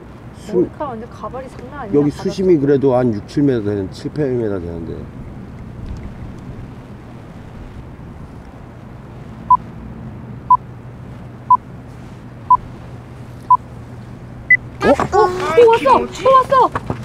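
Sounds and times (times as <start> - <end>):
wind on microphone: 5.1 - 9.4.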